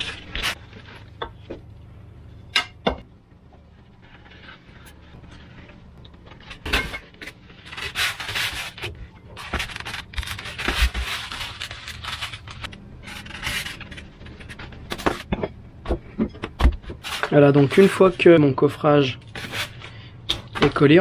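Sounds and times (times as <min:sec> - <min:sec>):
foam sheets scraping: 0:00.0 - 0:01.0, 0:07.4 - 0:15.3, 0:17.0 - 0:21.0.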